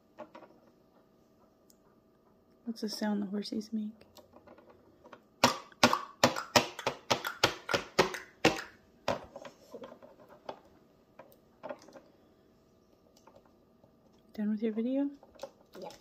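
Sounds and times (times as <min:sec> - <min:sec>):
taps imitating horse hoofbeats: 0:05.4 - 0:08.8.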